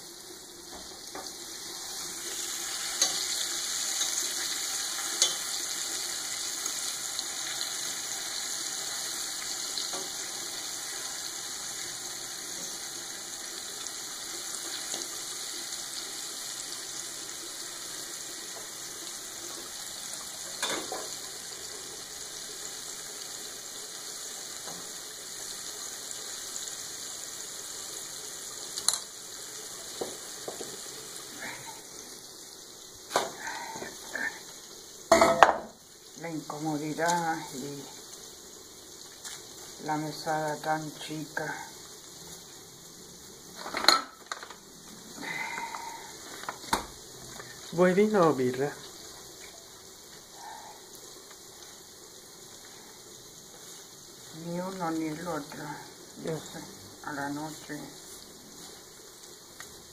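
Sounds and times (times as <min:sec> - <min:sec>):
squid deep-frying in oil: 0:00.0 - 0:59.9.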